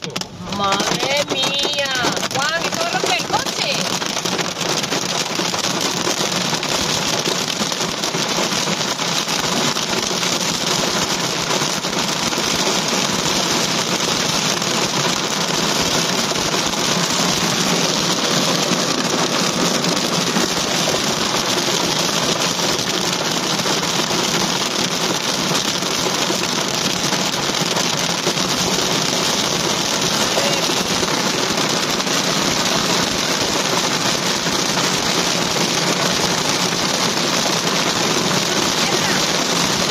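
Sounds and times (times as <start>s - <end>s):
heavy rain and hail on car roof: 0.0s - 39.9s.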